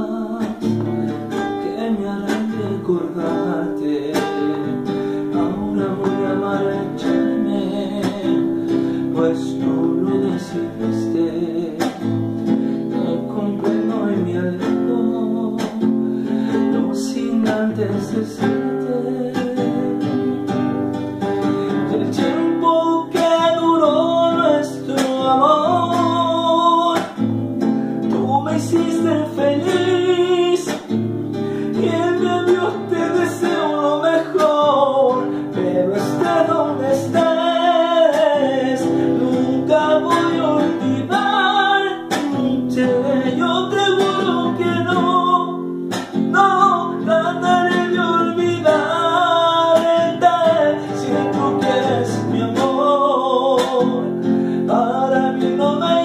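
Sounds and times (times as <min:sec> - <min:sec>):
man singing: 0:00.0 - 0:27.4, 0:28.0 - 0:56.0
strummed acoustic guitar: 0:00.0 - 0:56.0.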